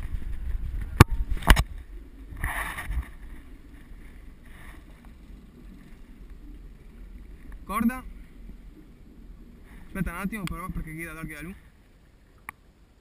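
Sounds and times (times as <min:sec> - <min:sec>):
soft scrape: 0:00.0 - 0:08.9.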